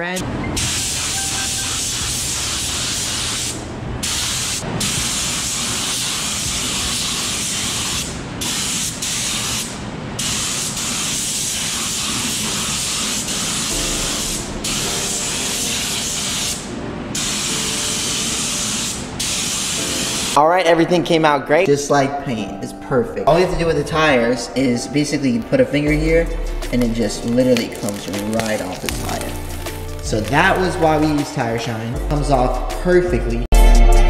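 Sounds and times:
spray gun hissing: 0.6s - 20.4s.

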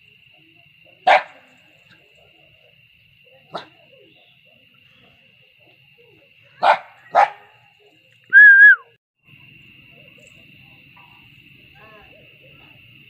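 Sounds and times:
small dog barking: 1.0s - 1.4s, 3.5s - 3.8s, 6.6s - 7.6s
whistle-like tone: 8.3s - 8.9s.

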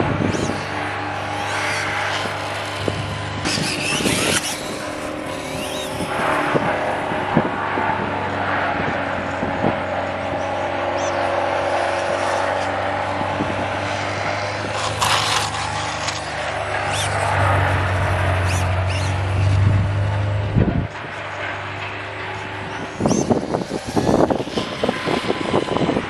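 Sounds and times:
toy motorbike motor whining: 0.0s - 6.7s, 14.4s - 19.6s, 22.7s - 26.0s.

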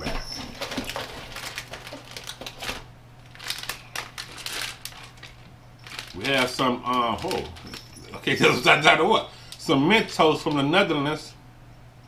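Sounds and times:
plastic candy wrapper crinkling: 0.6s - 8.8s.

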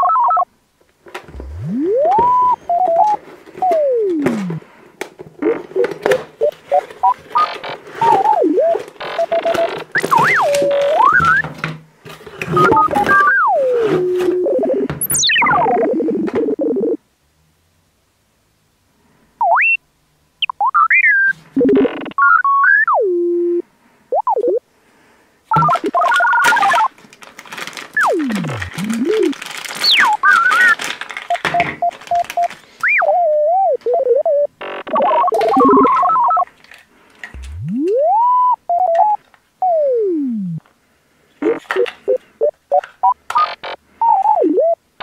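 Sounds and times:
electronic bleeps and buzzes: 1.3s - 4.6s, 5.4s - 11.5s, 12.5s - 17.0s, 20.4s - 24.6s, 25.5s - 26.9s, 28.0s - 30.8s, 32.4s - 36.4s, 37.4s - 40.6s, 41.4s - 44.8s
sliding electronic whistle tones: 1.3s - 4.6s, 7.0s - 11.5s, 12.5s - 15.7s, 29.8s - 30.8s, 32.1s - 36.4s
plastic crinkling: 25.6s - 33.0s.

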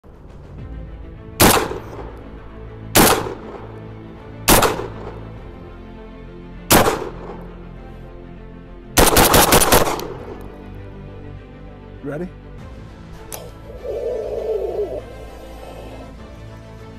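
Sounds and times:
shotgun shots: 1.4s - 2.1s, 3.0s - 3.7s, 4.5s - 5.3s, 6.7s - 7.4s, 9.0s - 10.2s.

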